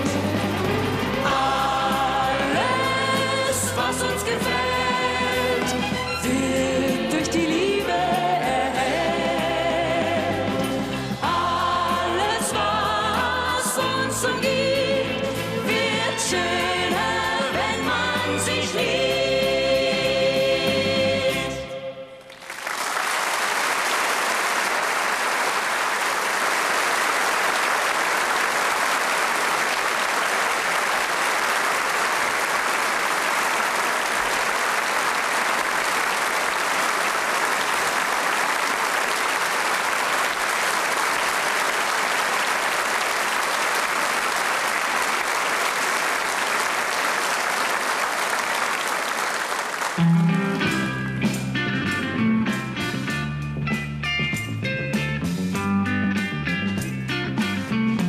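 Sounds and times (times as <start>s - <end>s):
duet singing with band: 0.0s - 21.8s
audience applauding: 22.2s - 50.7s.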